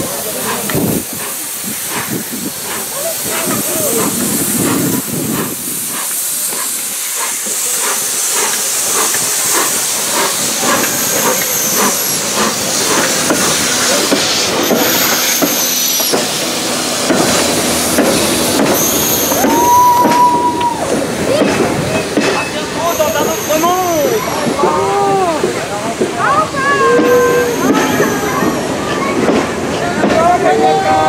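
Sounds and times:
locomotive exhaust chuffs: 0.0 - 28.8
steam hissing: 0.0 - 31.0
steam whistle: 18.0 - 21.0.

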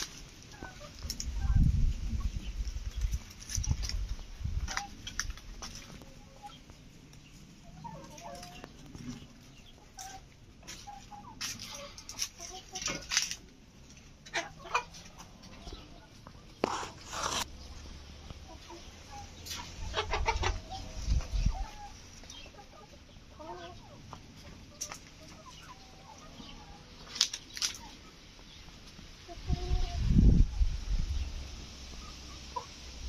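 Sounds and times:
chickens clucking: 0.0 - 33.0.

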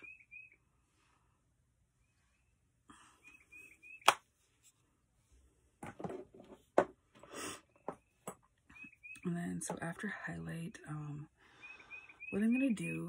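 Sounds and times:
faint bird chirps: 0.0 - 0.8, 1.9 - 4.1, 7.6 - 9.6, 11.4 - 13.0.

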